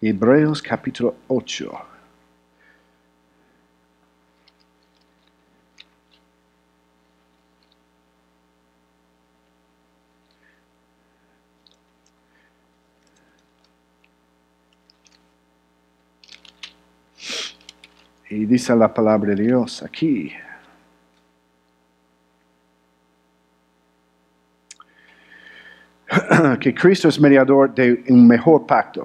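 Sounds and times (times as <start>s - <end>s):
faint electrical hum: 0.0s - 29.0s
short breath: 2.6s - 3.6s, 24.9s - 26.0s
paper pages rustling: 16.2s - 18.2s.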